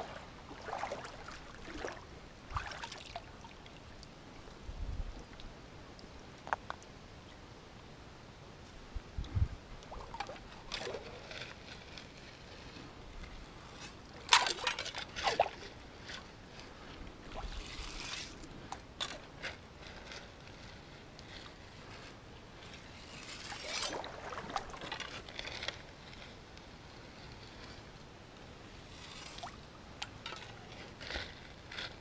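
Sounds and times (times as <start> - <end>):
water splashing in creek: 0.0 - 4.6, 9.8 - 11.6, 14.1 - 16.3, 23.2 - 25.6
stream trickling: 0.0 - 7.6, 9.2 - 11.9, 23.0 - 25.8.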